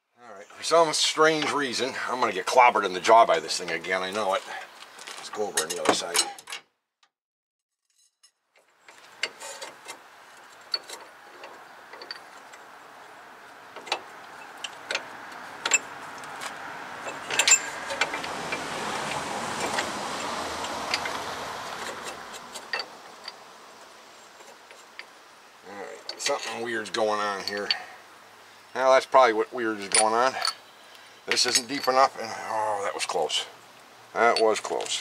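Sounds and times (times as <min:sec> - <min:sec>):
vehicle passing: 0:11.2 - 0:24.1.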